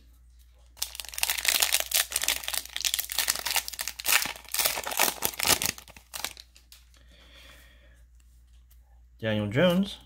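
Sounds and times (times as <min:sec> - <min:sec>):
plastic wrapper crinkling and tearing: 0:00.8 - 0:07.0.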